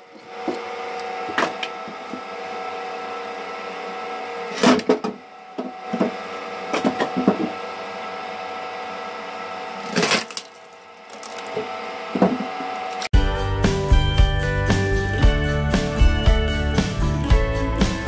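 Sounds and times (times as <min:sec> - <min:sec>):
motor humming: 0:05.4 - 0:18.0.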